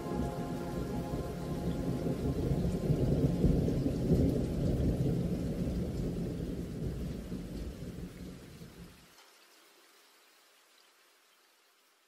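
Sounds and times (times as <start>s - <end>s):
rolling thunder rumbling: 0.0s - 8.9s
steady rain: 0.0s - 12.0s.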